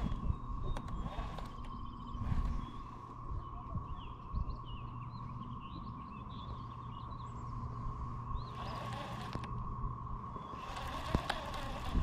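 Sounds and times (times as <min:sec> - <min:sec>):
electric motor whine: 0:00.0 - 0:03.2, 0:08.4 - 0:12.0
small birds chirping: 0:00.0 - 0:12.0.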